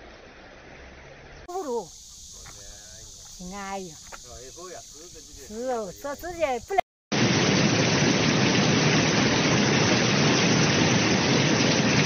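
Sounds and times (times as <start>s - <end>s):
heavy rain on a flooded road: 7.2s - 12.0s.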